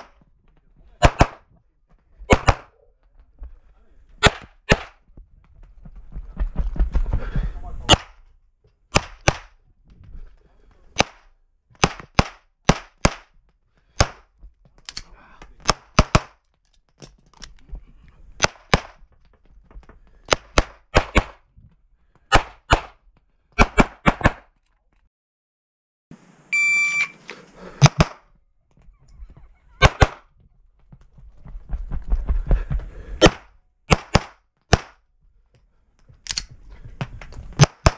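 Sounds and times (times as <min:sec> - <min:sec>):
pistol shots: 0:01.0 - 0:01.4, 0:02.3 - 0:02.8, 0:04.2 - 0:05.0, 0:08.9 - 0:09.6, 0:20.3 - 0:21.4, 0:29.8 - 0:30.3, 0:33.2 - 0:35.0
electronic beep: 0:26.5 - 0:27.2.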